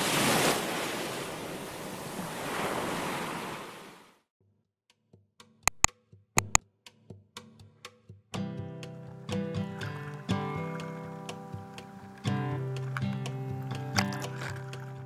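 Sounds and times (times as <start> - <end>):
mouse clicks: 5.7 - 6.6.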